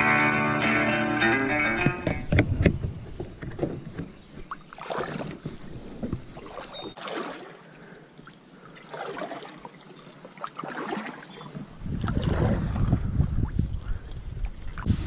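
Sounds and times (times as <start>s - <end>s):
kayak paddle splashing in water: 2.2s - 12.9s.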